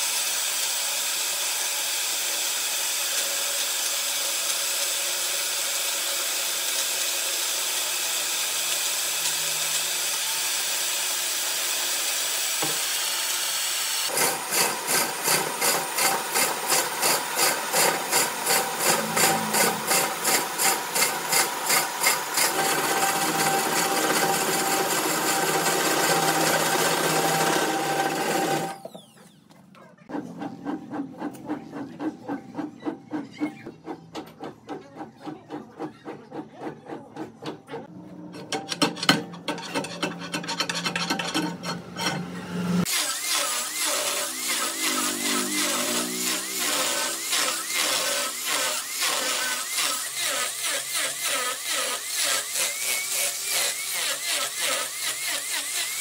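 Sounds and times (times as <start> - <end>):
wood lathe hissing: 0.0 - 28.8, 42.6 - 56.0
rhythmic rasping on wood: 14.1 - 28.7, 30.1 - 37.9, 42.8 - 56.0.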